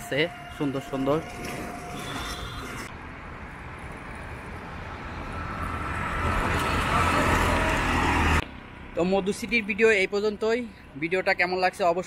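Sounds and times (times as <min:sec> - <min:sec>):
vehicle engine hum: 0:00.0 - 0:11.0
road noise: 0:00.0 - 0:12.0.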